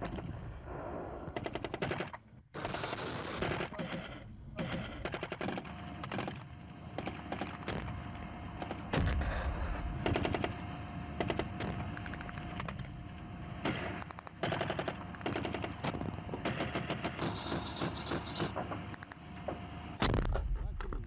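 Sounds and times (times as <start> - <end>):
automatic gunfire bursts: 1.3 - 7.9, 10.0 - 12.4, 13.6 - 18.7
loud deep bang: 8.9 - 10.2
single gunshots: 8.9 - 10.6.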